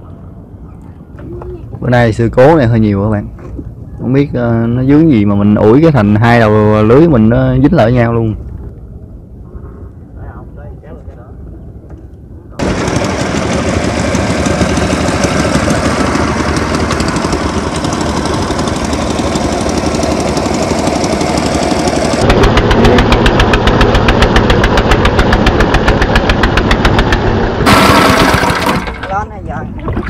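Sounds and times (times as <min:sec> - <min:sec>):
boat engine running: 0:12.5 - 0:30.0.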